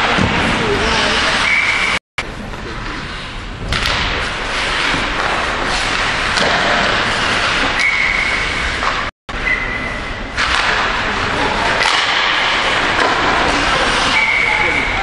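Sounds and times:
skates scraping on ice: 0.0 - 2.0, 3.0 - 9.1, 10.4 - 15.0
puck thudding against boards: 3.7 - 8.0.

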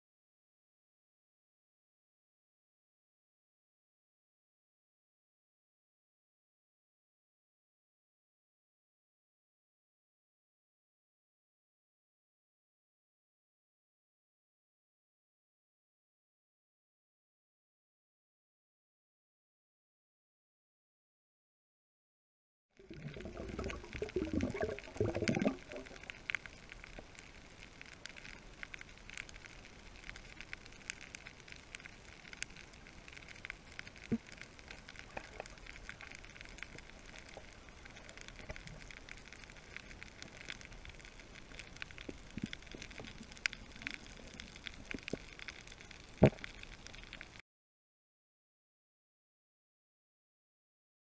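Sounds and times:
snapping shrimp clicks underwater: 22.9 - 27.2, 41.4 - 47.3.

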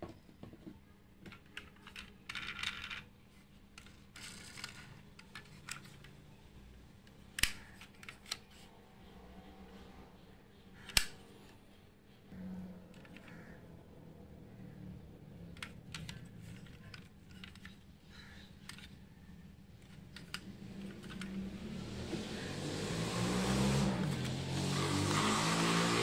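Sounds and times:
metal toy cars clicking: 1.2 - 3.1, 3.7 - 8.7, 10.8 - 11.6, 12.8 - 13.6, 15.2 - 22.0.

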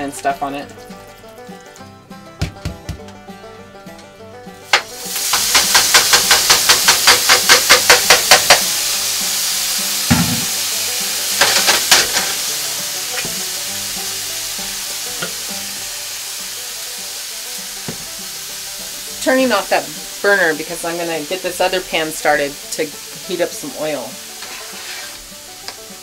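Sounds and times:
rapid taps against a pan: 2.4 - 3.2, 4.7 - 8.7, 11.4 - 12.3, 17.8 - 18.2
meat sizzling in a skillet: 4.7 - 26.0
seasoning shaker clicks: 5.2 - 8.7, 11.4 - 12.4
thump: 10.1 - 10.5.

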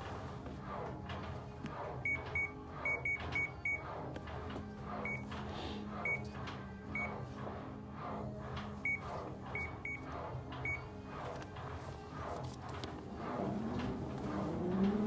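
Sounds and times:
breathing through face mask regulator: 5.5 - 6.0.

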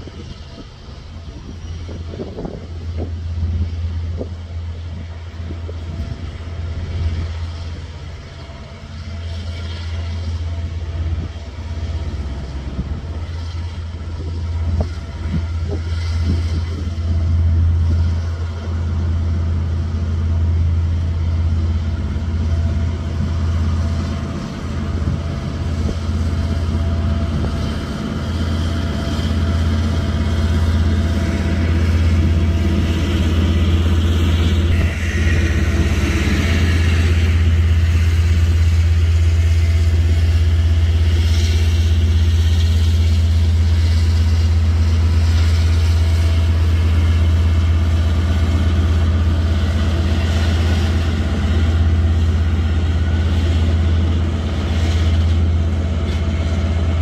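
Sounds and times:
diesel locomotive engine drone: 0.0 - 57.0.

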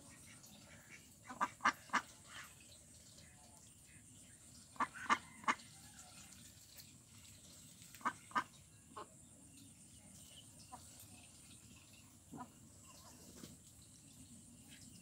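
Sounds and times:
ducks quacking: 0.0 - 2.6, 4.7 - 5.6, 7.9 - 9.1, 12.3 - 13.2.

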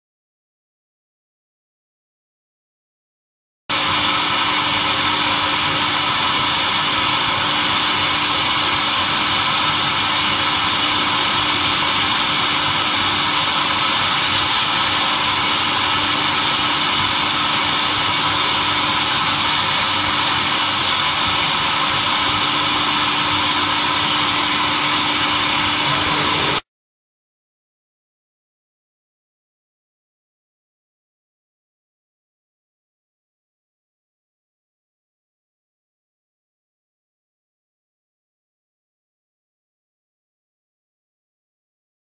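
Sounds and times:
steady hum: 3.7 - 26.6
welding machine hissing: 3.7 - 26.6.

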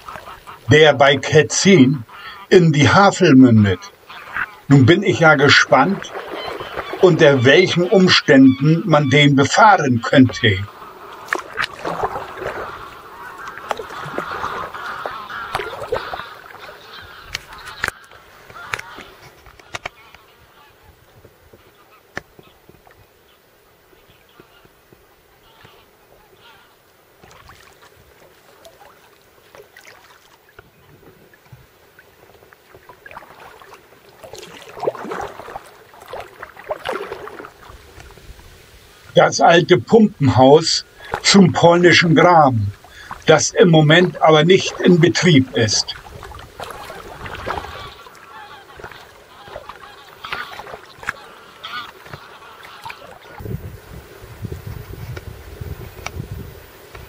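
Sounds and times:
kayak paddles splashing in water: 0.0 - 2.6, 3.6 - 39.2, 39.8 - 57.0
geese honking: 0.0 - 21.0, 24.0 - 24.7, 25.3 - 26.8, 38.9 - 53.4.

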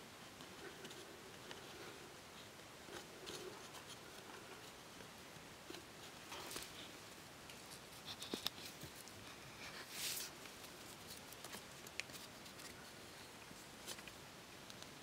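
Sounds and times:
bamboo scraping and tapping: 7.5 - 9.1.

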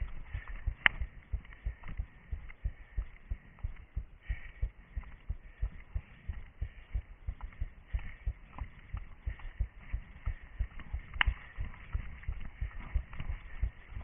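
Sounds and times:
running footsteps on forest ground: 0.0 - 14.0.

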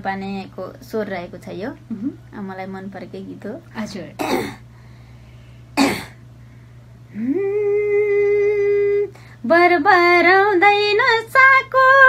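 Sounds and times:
woman clearing her throat: 4.2 - 4.6, 5.8 - 6.2.

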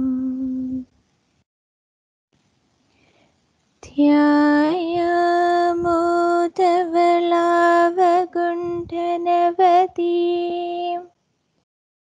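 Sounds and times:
woman singing unaccompanied: 0.0 - 0.9, 3.8 - 11.2.

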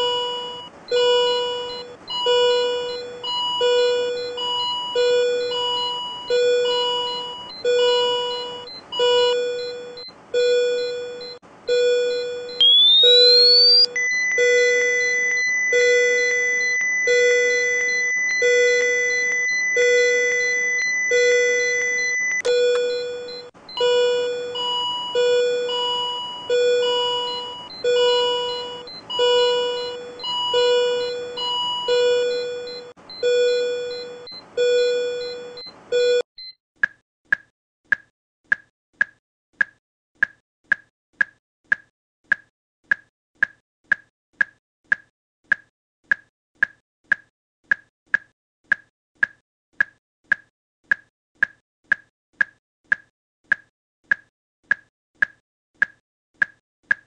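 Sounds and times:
short monitor beeps: 12.1 - 24.3
electronic multi-note alert chime: 12.6 - 23.4.

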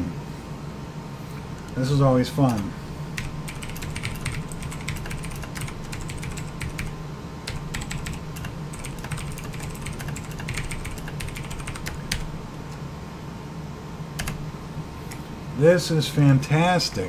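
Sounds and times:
air conditioner hum: 0.0 - 17.0
typing on keyboard: 2.5 - 6.9, 7.5 - 12.3, 14.2 - 14.4.

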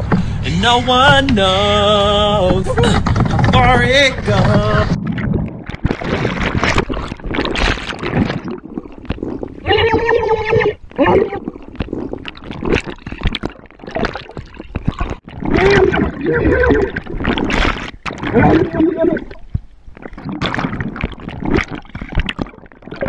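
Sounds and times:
water sloshing and bubbling: 0.0 - 23.0.

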